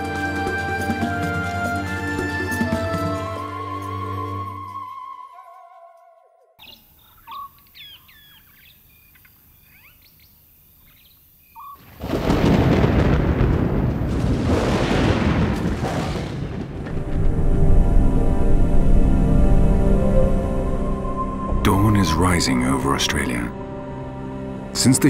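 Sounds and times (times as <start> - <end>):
music: 0.0 - 6.6, 16.9 - 25.0
faint bird chirping: 6.6 - 11.8
rolling thunder rumble: 11.8 - 22.5.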